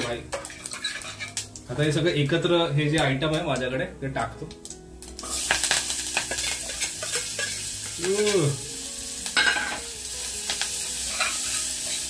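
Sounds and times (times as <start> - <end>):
food sizzling in hot oil: 0.0 - 3.7, 4.4 - 12.0.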